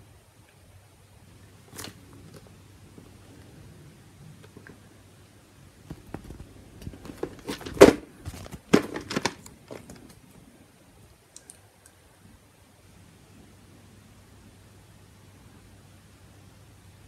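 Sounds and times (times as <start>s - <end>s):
plastic tape case handled: 5.8s - 10.2s.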